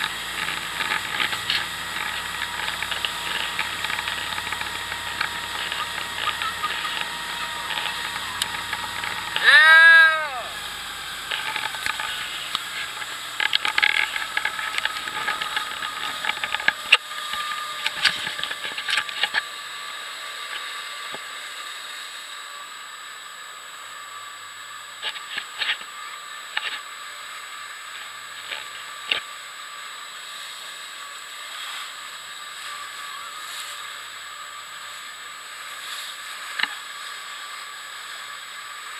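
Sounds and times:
water churning and hissing: 0.0 - 17.8
motorboat running at speed: 0.0 - 38.9.

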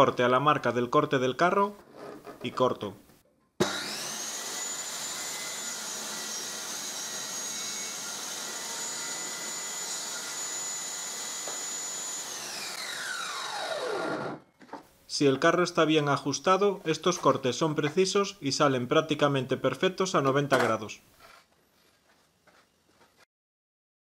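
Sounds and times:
table saw whining: 3.6 - 14.6.

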